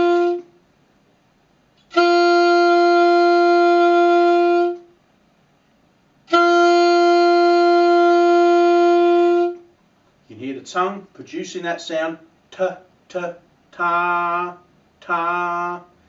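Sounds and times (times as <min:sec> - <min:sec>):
saxophone mouthpiece tones: 0:00.0 - 0:00.6, 0:01.8 - 0:05.0, 0:06.2 - 0:09.7.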